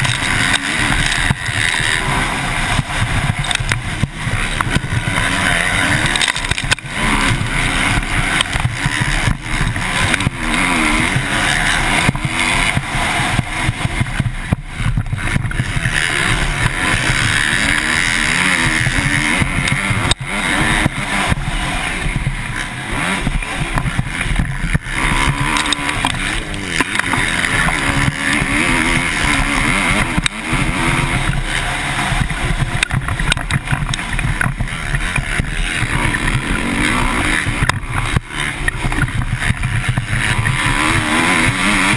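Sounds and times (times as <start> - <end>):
motocross bike engine revving: 0.0 - 41.9.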